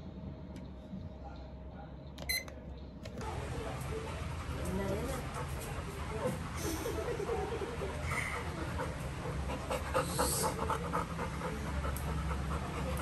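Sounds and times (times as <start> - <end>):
dog panting: 3.2 - 13.0.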